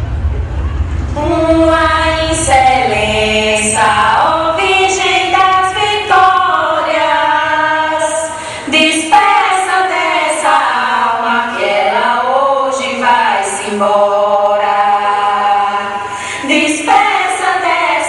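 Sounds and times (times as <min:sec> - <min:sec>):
women's choir singing lament: 0:01.2 - 0:18.0.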